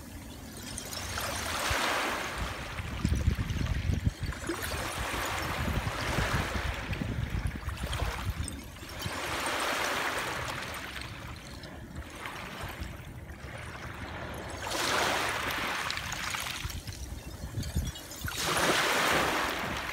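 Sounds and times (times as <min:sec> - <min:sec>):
small waves washing on shore: 0:00.0 - 0:19.9
glass shards clicking: 0:16.6 - 0:18.9.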